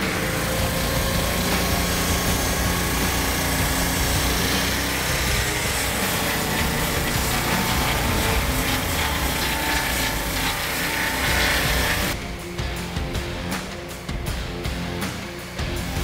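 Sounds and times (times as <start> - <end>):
saw blade cutting log: 0.0 - 12.2
sawmill petrol engine running: 0.0 - 16.0.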